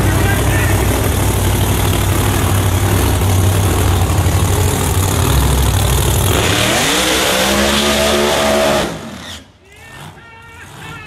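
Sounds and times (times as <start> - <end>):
race car engine idling: 0.0 - 6.4.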